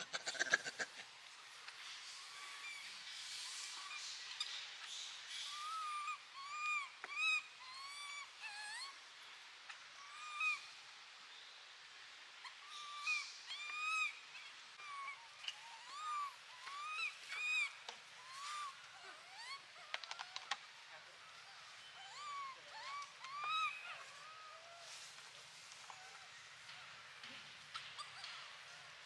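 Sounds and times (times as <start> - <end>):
baby macaque crying: 0.0 - 1.1, 5.6 - 9.0, 14.8 - 20.6, 21.4 - 25.0.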